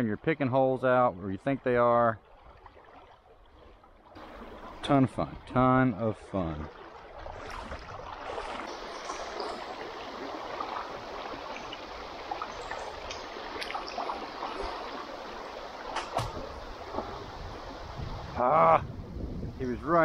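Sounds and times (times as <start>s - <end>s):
river current rushing: 4.2s - 5.6s, 6.3s - 18.5s.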